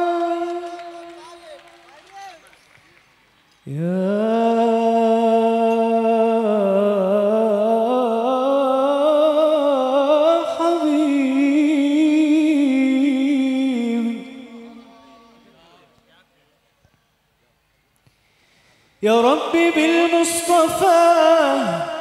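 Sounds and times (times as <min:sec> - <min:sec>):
man singing a long note: 0:00.0 - 0:01.4, 0:03.7 - 0:15.6, 0:19.0 - 0:22.0.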